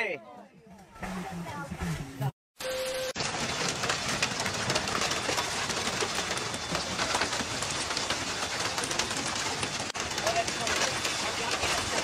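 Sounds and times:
heavy rain on cars and pavement: 3.1s - 12.0s.

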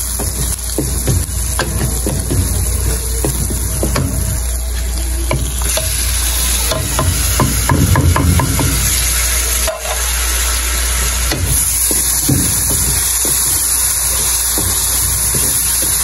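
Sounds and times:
meat sizzling in a pan: 0.0s - 16.0s.

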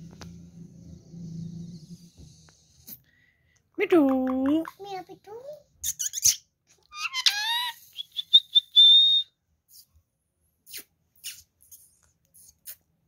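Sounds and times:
high thin whistle: 8.1s - 9.4s.

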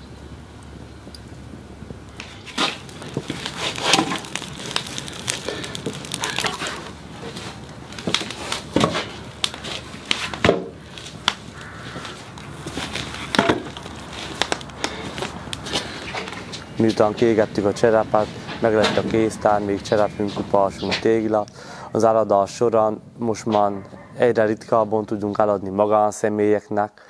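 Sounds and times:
wooden logs knocking: 2.2s - 15.4s.

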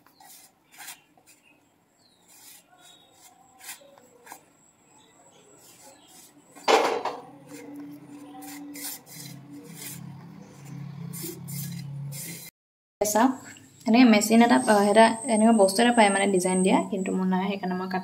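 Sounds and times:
hands kneading dough: 2.2s - 6.6s.

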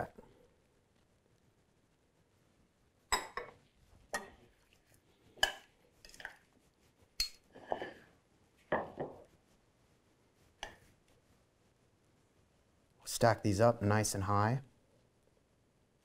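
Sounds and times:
tongs clinking against ceramic bowl: 7.2s - 7.9s.

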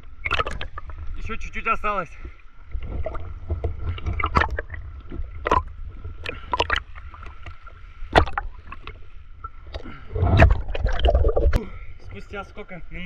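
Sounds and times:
water splashing from swimming strokes: 0.0s - 1.4s, 2.8s - 11.7s.

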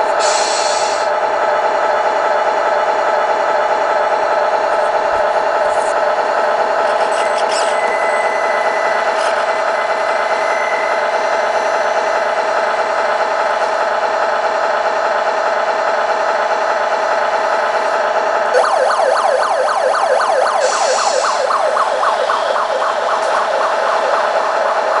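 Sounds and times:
engine-like drone: 0.0s - 25.0s
electronic police siren yelping: 18.5s - 25.0s.

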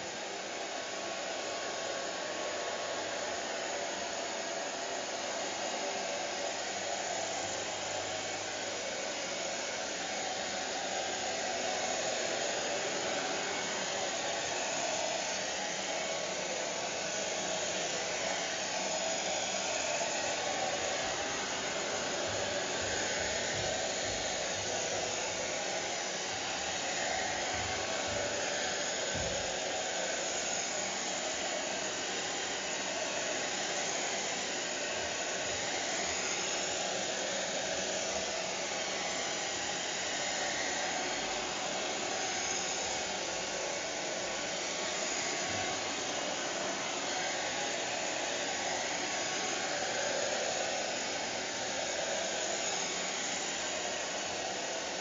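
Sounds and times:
hair dryer running: 0.0s - 55.0s.

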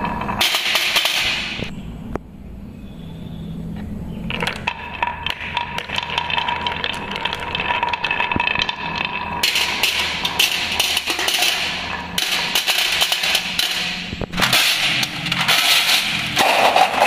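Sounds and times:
marbles dropping into metal tin: 0.0s - 1.7s, 4.3s - 17.0s
marbles rattling on wooden tracks: 4.3s - 17.0s.

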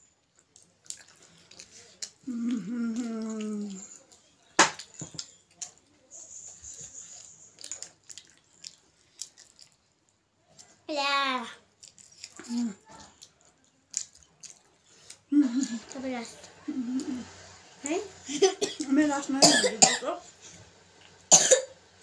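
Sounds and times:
person humming mmm: 2.2s - 3.9s.

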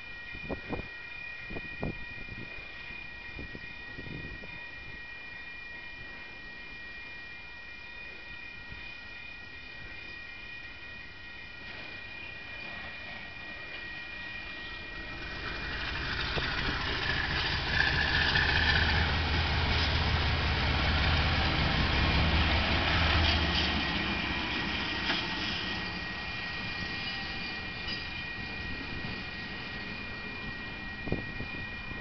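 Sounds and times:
diesel locomotive engine: 0.0s - 32.0s
wheels clicking over rails: 14.8s - 30.2s.

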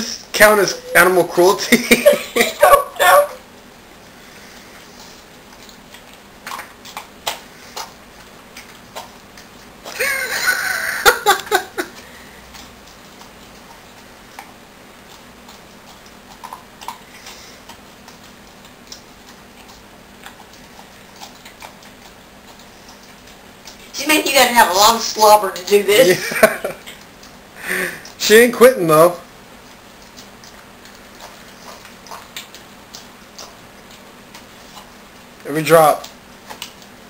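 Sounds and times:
dog licking and smacking: 11.8s - 23.9s, 29.6s - 35.4s.

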